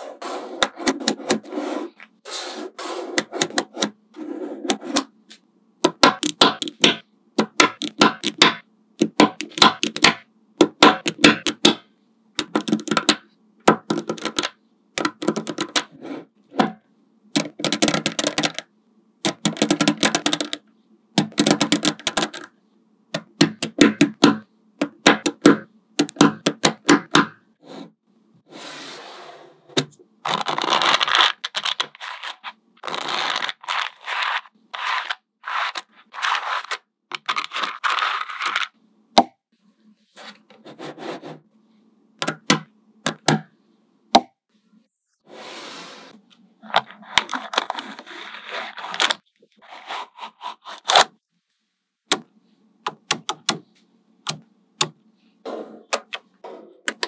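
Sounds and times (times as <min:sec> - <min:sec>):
balls rattling and scraping: 0:30.3 - 0:38.8, 0:46.6 - 0:50.9.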